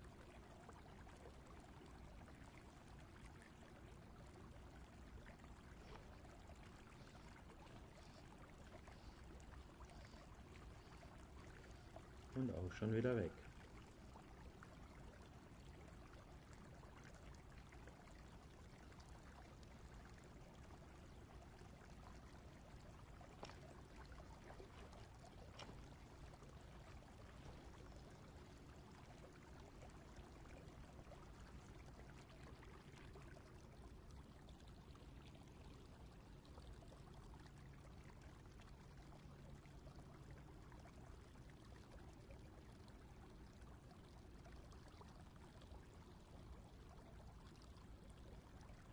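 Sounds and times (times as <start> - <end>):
flowing stream water: 0.0 - 48.9
faint clicks: 23.3 - 23.7, 24.6 - 26.0.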